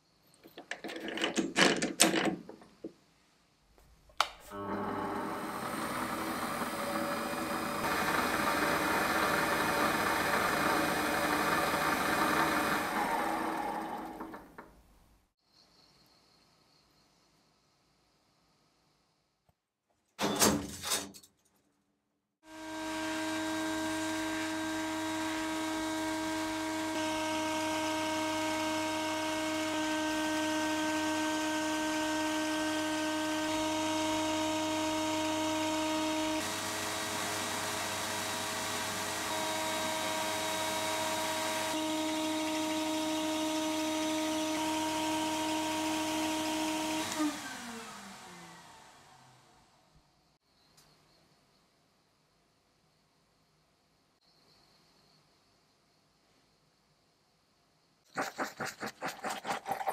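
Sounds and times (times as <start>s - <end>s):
metal parts knocking: 0.4s - 2.8s
motor humming: 4.5s - 14.6s.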